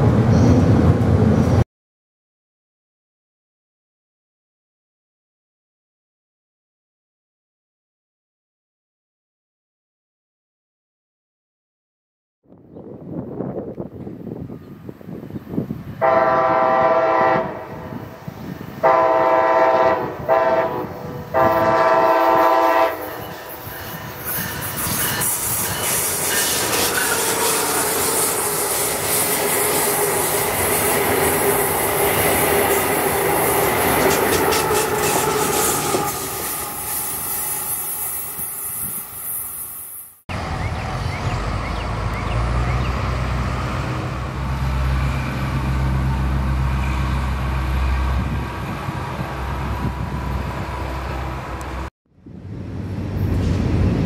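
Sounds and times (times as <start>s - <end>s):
train whine: 13.2s - 54.0s
train deep rumble: 16.0s - 37.7s, 40.3s - 54.0s
train wheels clicking over rail joints: 23.1s - 38.5s.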